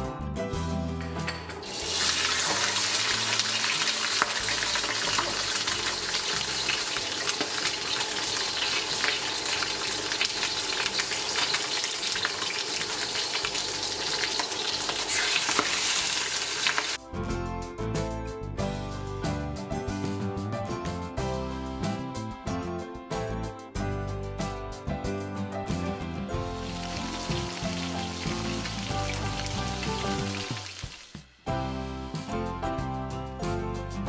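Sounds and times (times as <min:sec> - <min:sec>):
fish sizzling in hot oil: 0:01.6 - 0:17.0, 0:26.5 - 0:31.2.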